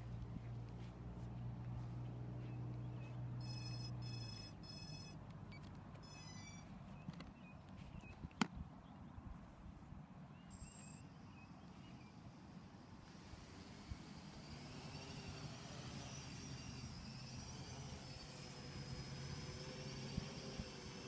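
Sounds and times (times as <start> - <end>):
low steady hum: 0.0 - 20.7
short electronic beeps: 3.4 - 6.7, 10.5 - 11.1
warbling beep: 3.4 - 6.7.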